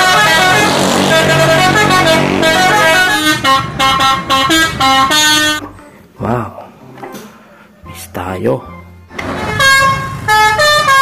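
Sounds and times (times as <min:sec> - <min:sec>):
bus musical air horn: 0:00.0 - 0:05.7, 0:09.1 - 0:11.0.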